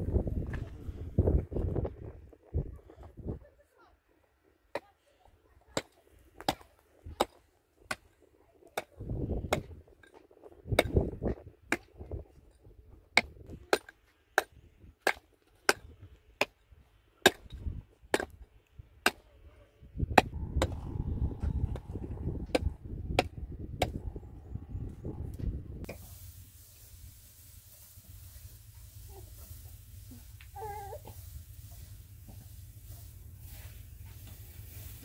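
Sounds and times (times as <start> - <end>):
low rumbling noise: 0.0 - 2.8, 19.9 - 35.0.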